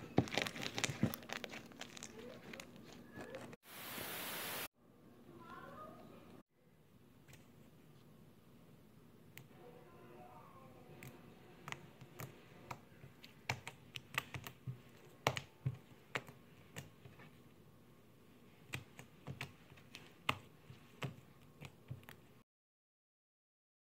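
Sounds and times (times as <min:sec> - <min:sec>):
slime being kneaded by hand: 0:00.0 - 0:03.6, 0:11.0 - 0:17.5, 0:18.5 - 0:22.4.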